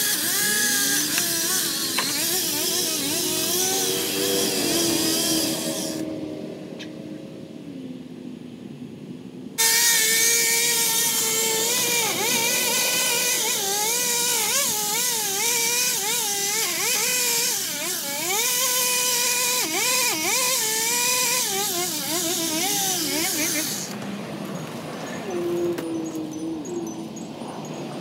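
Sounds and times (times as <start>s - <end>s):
pole saw motor whining: 0.0s - 6.7s, 9.6s - 27.8s.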